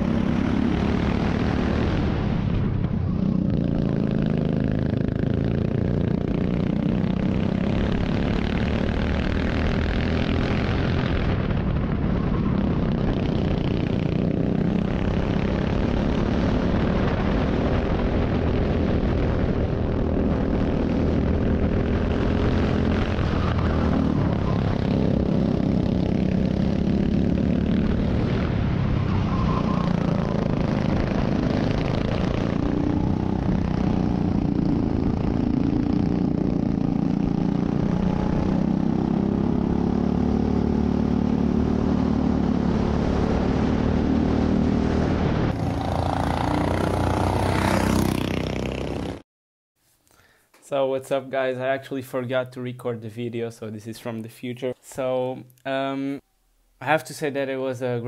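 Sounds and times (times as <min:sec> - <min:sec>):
kart engine from trackside: 0:00.0 - 0:49.2
go-kart engine revving: 0:03.2 - 0:11.2, 0:17.8 - 0:28.4, 0:29.6 - 0:44.9, 0:45.5 - 0:49.2.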